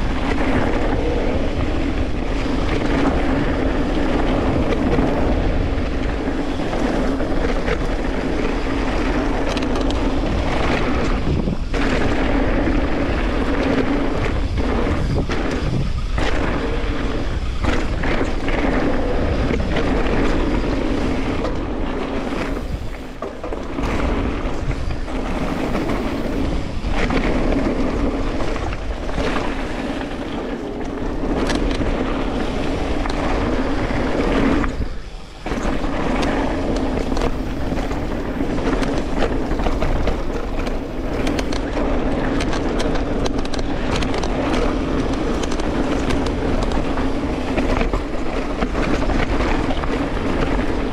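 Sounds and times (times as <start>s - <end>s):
bike rattles and knocks: 0.0s - 50.9s
steady motor hum: 0.0s - 50.9s
wind buffeting microphone: 0.0s - 50.9s.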